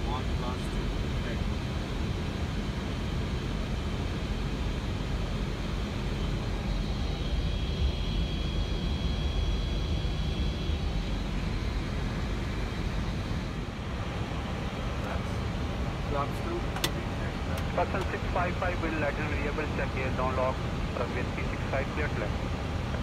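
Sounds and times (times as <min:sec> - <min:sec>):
cockpit airflow and engine rumble: 0:00.0 - 0:23.0
faint high whine: 0:04.8 - 0:23.0.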